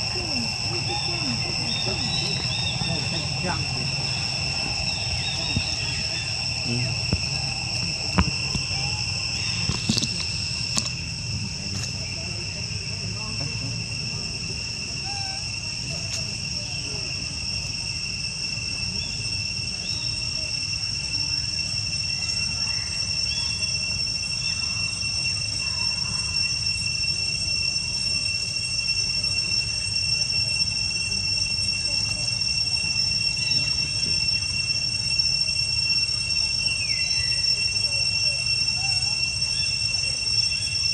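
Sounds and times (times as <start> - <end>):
low rumble: 0.0 - 13.9
insects droning: 0.0 - 40.9.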